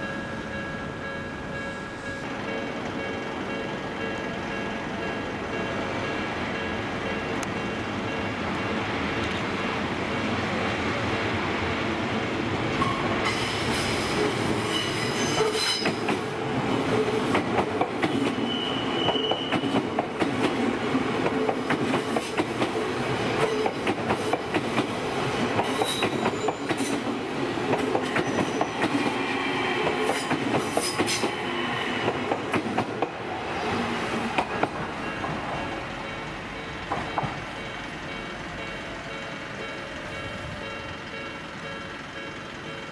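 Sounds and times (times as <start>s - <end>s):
high-pitched wheel squeals: 14.6s - 16.0s, 18.4s - 19.8s.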